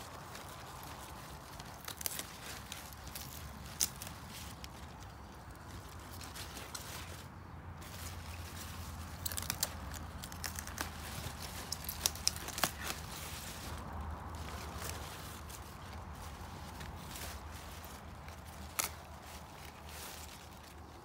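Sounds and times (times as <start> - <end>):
lettuce leaves rustling and snapping: 0.0 - 21.0.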